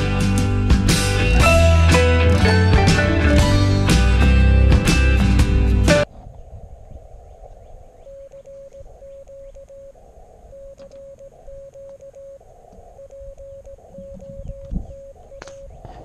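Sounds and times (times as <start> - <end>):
morse code tone: 8.1 - 9.9, 10.5 - 12.4, 13.0 - 15.8.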